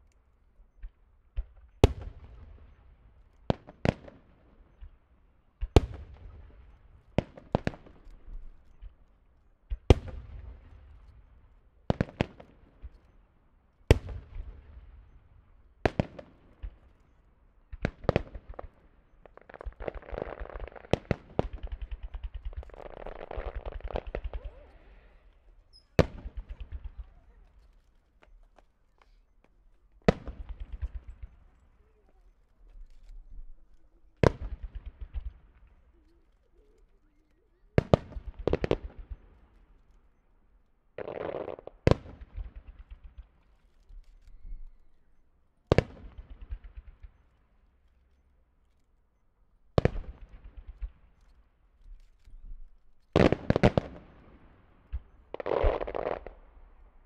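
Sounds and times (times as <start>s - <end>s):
rapid firework pops: 0.7s - 13.2s, 13.8s - 15.2s, 15.8s - 40.0s, 41.0s - 45.0s, 45.7s - 48.1s, 49.7s - 57.0s
firework shells bursting: 15.9s - 39.9s, 41.0s - 45.0s, 49.7s - 56.8s
firework crackling: 17.7s - 39.6s, 41.0s - 44.0s, 52.9s - 57.0s.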